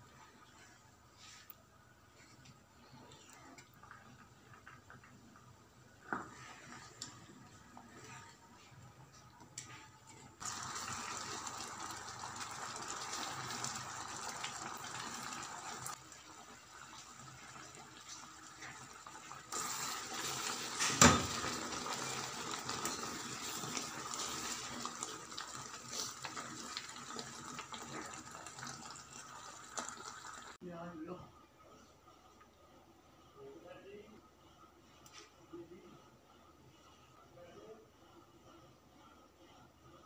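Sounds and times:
chutney bubbling in a pot: 0:10.1 - 0:30.6.

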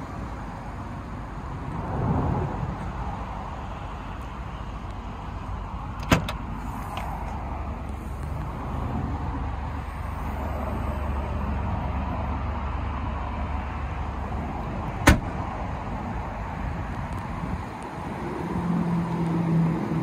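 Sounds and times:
low outdoor rumble: 0:00.0 - 0:20.0
tailgate latch clicking: 0:06.0 - 0:06.4, 0:15.0 - 0:15.3.

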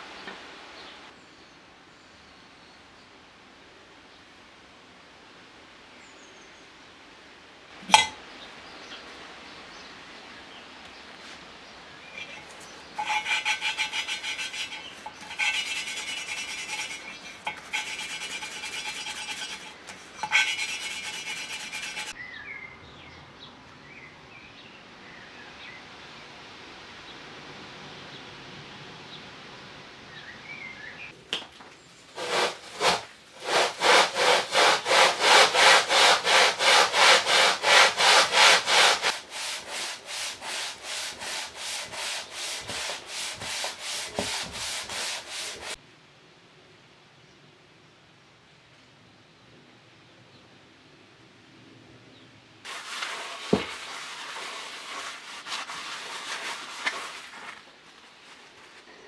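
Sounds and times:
valve lapping grinding: 0:12.2 - 0:22.1
engine block rubbed on abrasive paper: 0:12.2 - 0:22.2, 0:32.2 - 0:45.8, 0:52.7 - 0:58.9.

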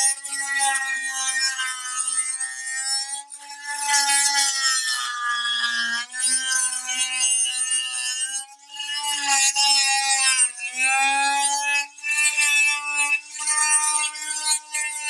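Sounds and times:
oscillating multi-tool cutting wood: 0:00.0 - 0:15.0.

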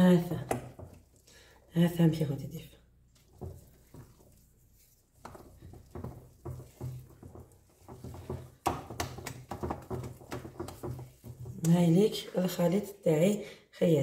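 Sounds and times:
whisk beating batter in bowl: 0:00.2 - 0:02.1, 0:02.9 - 0:11.8.

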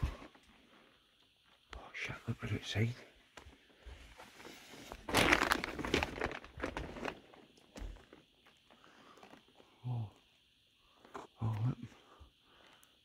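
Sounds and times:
plastic sheeting crinkling: 0:04.0 - 0:09.5.

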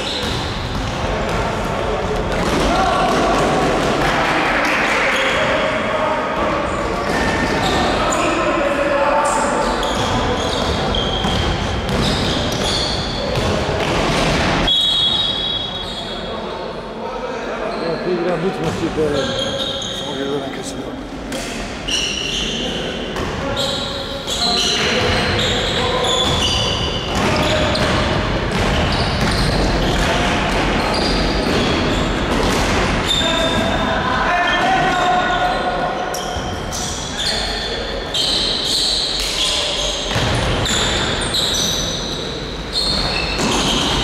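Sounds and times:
sneakers squeaking on hardwood: 0:00.0 - 0:01.0, 0:09.7 - 0:14.4, 0:17.7 - 0:20.4, 0:21.8 - 0:33.7, 0:34.8 - 0:44.0
echoing hall noise: 0:00.0 - 0:44.0
basketball bouncing: 0:00.2 - 0:01.4, 0:10.0 - 0:12.7, 0:27.1 - 0:31.7.

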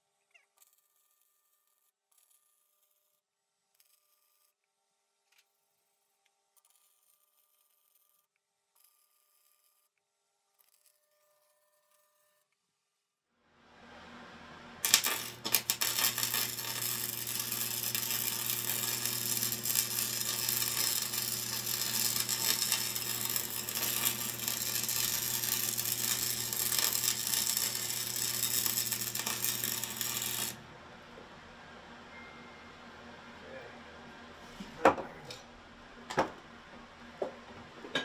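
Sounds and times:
low hum: 0:13.5 - 0:34.5
arc welding crackling hiss: 0:14.8 - 0:30.6.

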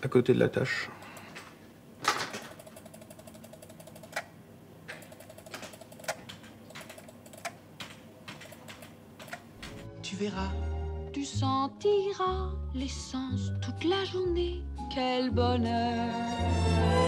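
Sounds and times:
sharp computer input clicks: 0:02.4 - 0:09.8
faint rapid ticking: 0:02.6 - 0:04.3, 0:04.9 - 0:09.4.

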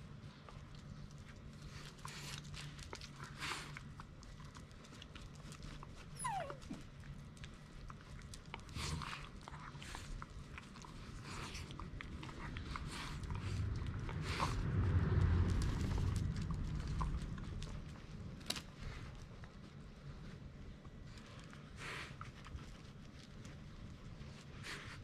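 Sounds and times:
faint rustling: 0:00.1 - 0:25.0
dog whining: 0:06.0 - 0:06.9.

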